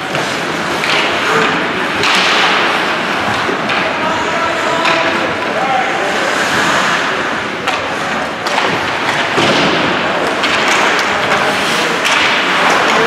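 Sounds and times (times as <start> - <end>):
crowd and arena noise: 0.0 - 13.0.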